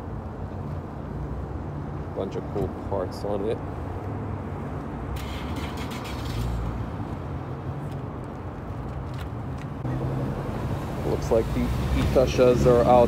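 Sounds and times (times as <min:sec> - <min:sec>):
car engines idling: 0:09.8 - 0:13.0.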